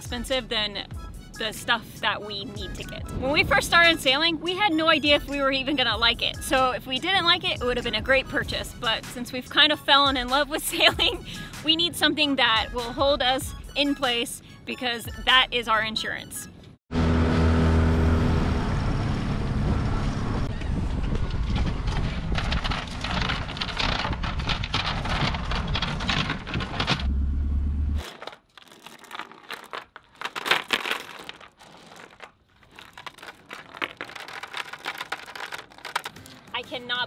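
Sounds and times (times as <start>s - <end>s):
anchor chain clinking: 28.0s - 36.6s.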